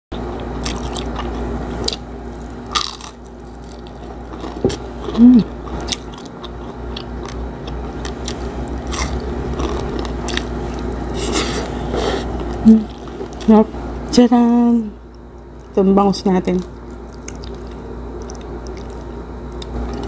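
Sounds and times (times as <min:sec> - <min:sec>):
crunchy bites and chewing: 0:00.1 - 0:14.0, 0:16.6 - 0:20.0
loud hum: 0:01.5 - 0:15.1.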